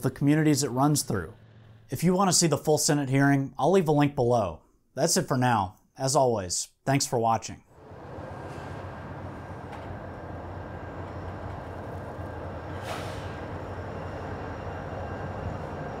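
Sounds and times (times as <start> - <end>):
diesel locomotive engine drone: 0.0 - 2.0, 7.8 - 16.0
brief burst of noise: 7.8 - 14.2.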